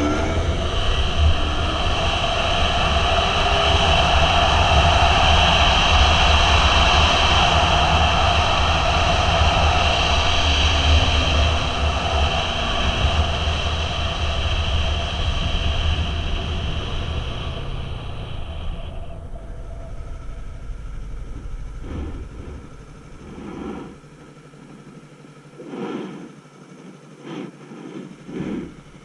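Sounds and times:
motorcycle road noise: 0.0 - 6.2, 8.9 - 25.0
wind noise: 0.0 - 24.0.

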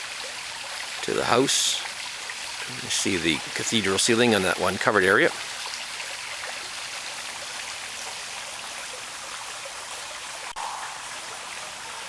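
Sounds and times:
garden waterfall trickling: 0.0 - 12.0.

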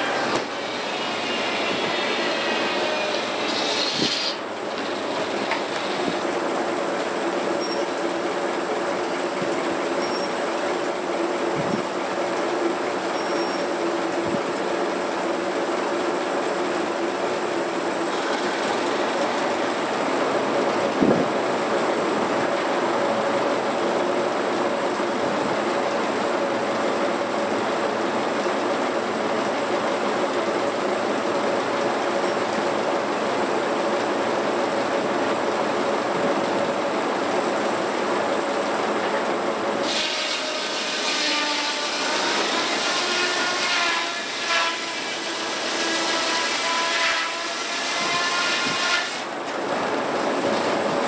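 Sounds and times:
circular saw blade cutting log: 0.0 - 8.0, 39.8 - 49.3
sawmill running: 0.0 - 51.0.

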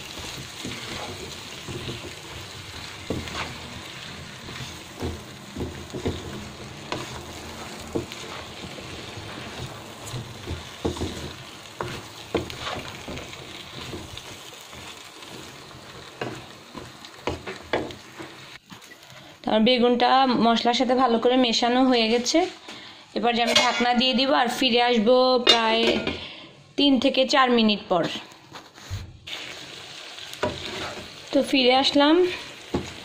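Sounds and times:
spatula scraping and knocking pan: 0.0 - 18.8, 30.4 - 31.2
food sizzling in oil: 0.0 - 22.4, 29.2 - 33.0.

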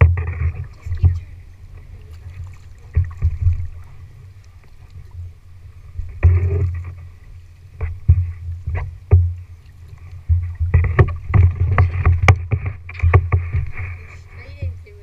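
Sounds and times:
paddles splashing in water: 0.0 - 15.0
knocks on plastic hull: 7.8 - 9.4, 10.2 - 13.8.

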